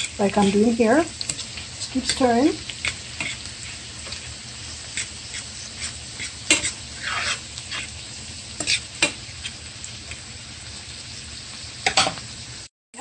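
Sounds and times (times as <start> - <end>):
spoon scraping and tapping pan: 0.0 - 4.2, 4.8 - 7.9, 8.6 - 10.2
garlic and onions sizzling in pan: 0.0 - 13.0.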